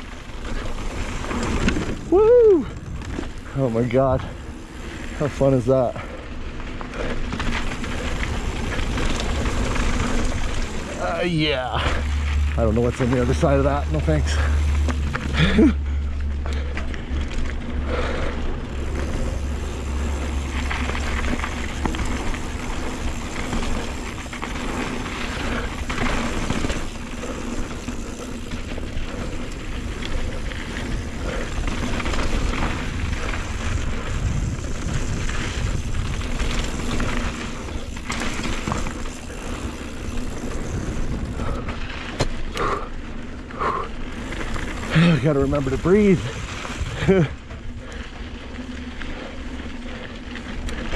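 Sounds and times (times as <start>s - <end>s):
bike tyre noise on dirt: 0.0s - 50.9s
bike knocks and rattles: 18.8s - 42.9s
wind rush on microphone: 29.7s - 38.0s.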